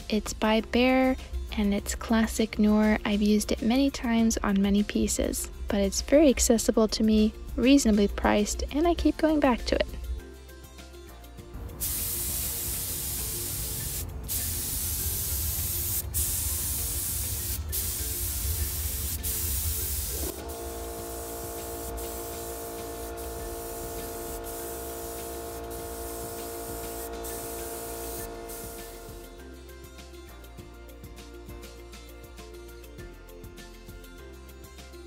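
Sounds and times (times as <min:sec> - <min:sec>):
air compressor humming: 0:11.6 - 0:29.3
paint spray gun hissing: 0:11.7 - 0:29.3.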